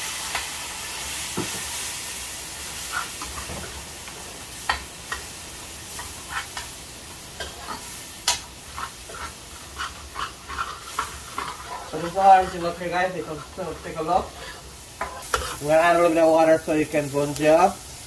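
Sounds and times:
spices sizzling in hot oil: 0.0 - 18.0
spoon scraping a metal pot: 8.8 - 15.6.

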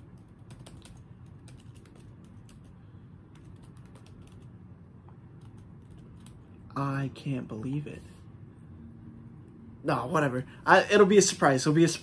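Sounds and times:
laptop keyboard typing: 0.0 - 4.6, 5.4 - 6.5
low steady hum: 0.0 - 12.0.

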